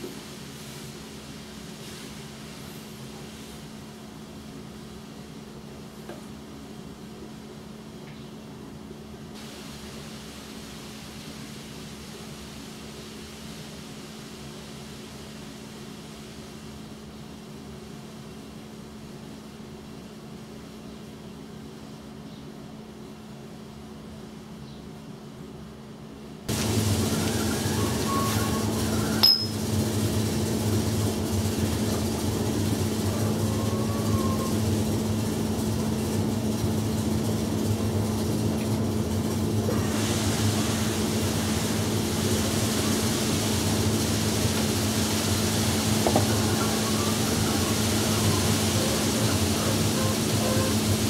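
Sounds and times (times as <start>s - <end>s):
sharp metallic clink: 29.2s - 29.6s.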